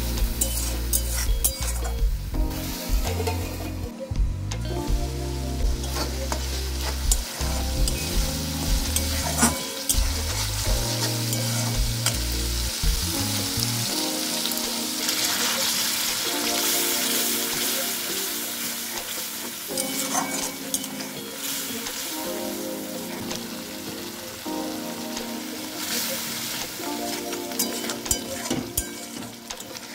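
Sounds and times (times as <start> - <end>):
paste sizzling in hot oil: 0.0 - 3.9, 5.5 - 29.9
background music: 0.0 - 29.9
spatula scraping metal pan: 9.0 - 10.4, 19.7 - 21.2.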